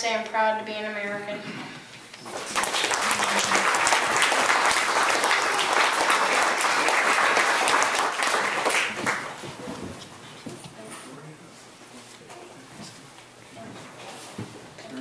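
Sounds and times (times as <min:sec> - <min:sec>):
audience applause: 0:02.2 - 0:09.5.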